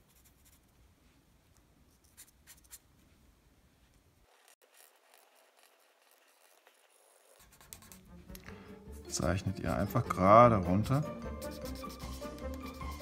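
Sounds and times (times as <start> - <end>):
felt-tip marker scratching on paper: 4.3 - 8.1, 11.3 - 13.0.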